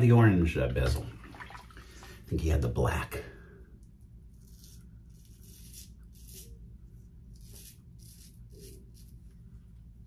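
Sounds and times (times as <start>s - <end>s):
razor scraping stubble: 4.2s - 9.4s.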